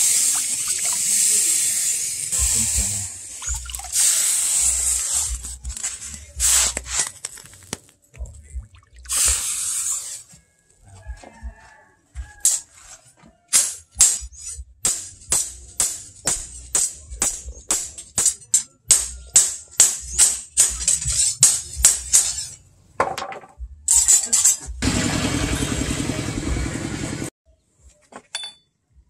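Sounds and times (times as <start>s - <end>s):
water splashing in a trough: 0.0s - 1.2s, 2.8s - 4.2s
hammer striking steel on anvil: 13.5s - 22.4s.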